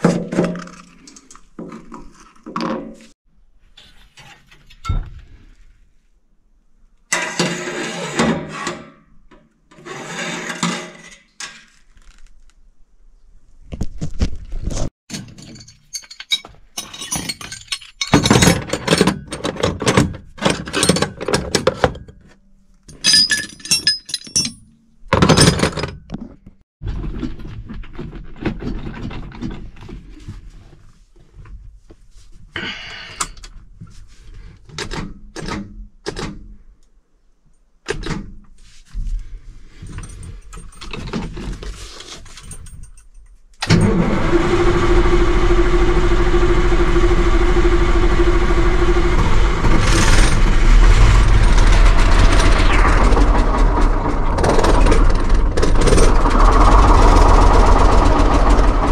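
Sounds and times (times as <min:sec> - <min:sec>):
metallic clanking of tools: 0:15.1 - 0:22.3, 0:22.9 - 0:26.1
engine starting and running: 0:43.6 - 0:58.9.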